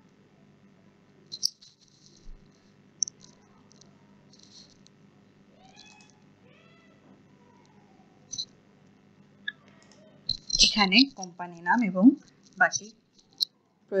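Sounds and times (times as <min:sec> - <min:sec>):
faint wavering calls: 0:09.5 - 0:11.4.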